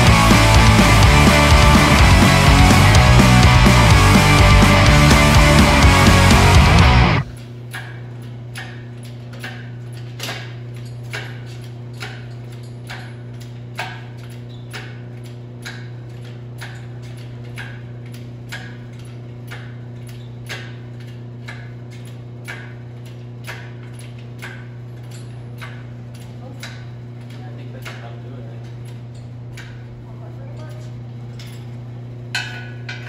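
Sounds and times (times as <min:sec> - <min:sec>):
low mechanical hum: 0:00.0 - 0:33.0.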